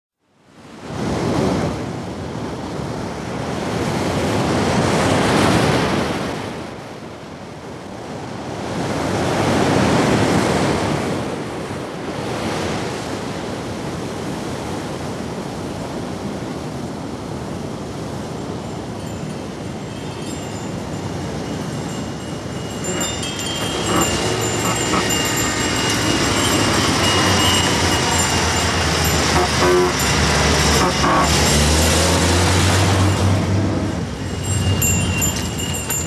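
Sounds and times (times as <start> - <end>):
ocean waves breaking: 0.6 - 36.0.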